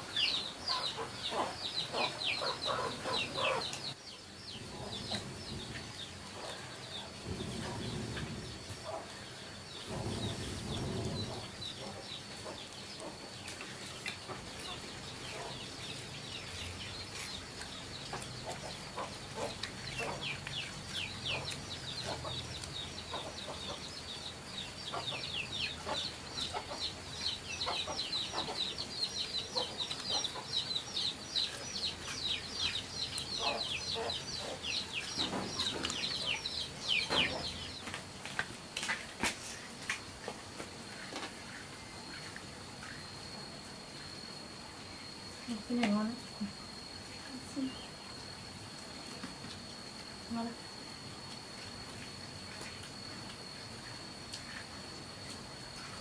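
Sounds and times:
chicks peeping: 0.0 - 38.0.

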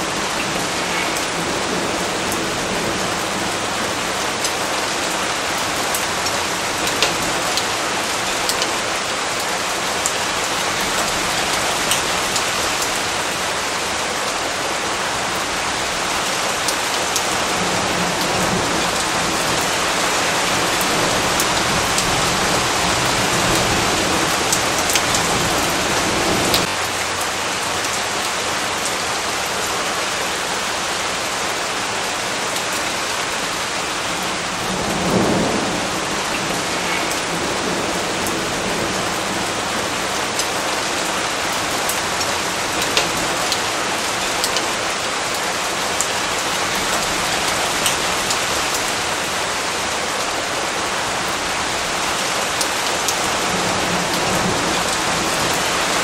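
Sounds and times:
steady rain falling: 0.0 - 56.0
sharp raindrop ticks: 5.6 - 13.1, 41.8 - 44.8.

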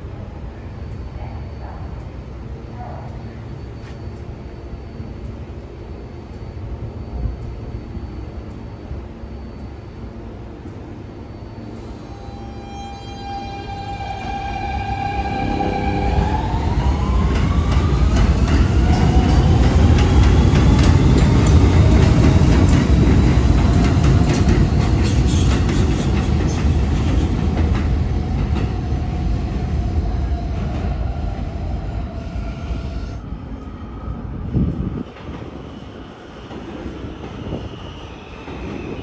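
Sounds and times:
train motor whine: 3.5 - 27.3
train wheels rumbling on rails: 13.7 - 39.0.

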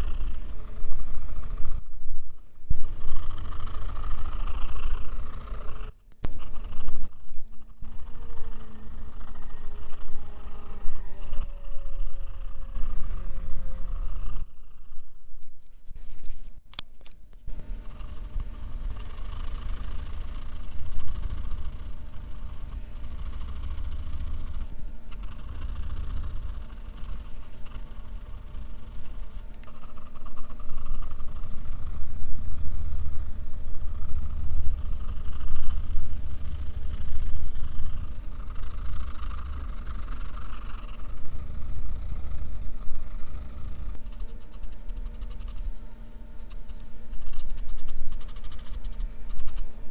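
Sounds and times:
pencil scratching on paper: 15.6 - 16.6.

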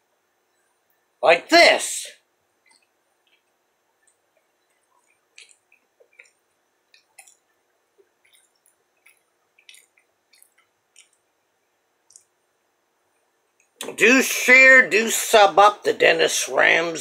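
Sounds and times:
person chewing food: 2.6 - 12.4.

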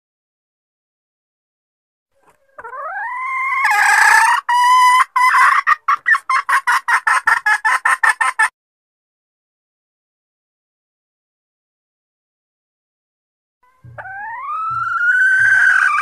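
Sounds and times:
hen calling and clucking: 2.2 - 8.5, 13.6 - 16.0.

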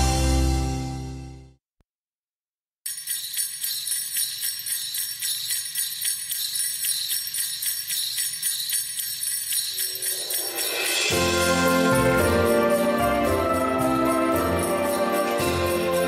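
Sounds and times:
holiday song: 0.0 - 1.3, 3.0 - 16.0
jingle bells shaking: 2.9 - 16.0.

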